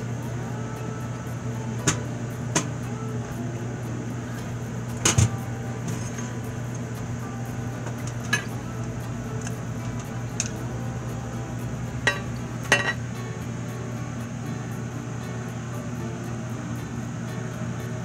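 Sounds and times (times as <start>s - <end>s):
steady low hum: 0.0s - 18.0s
metallic clinks and taps: 12.0s - 13.0s.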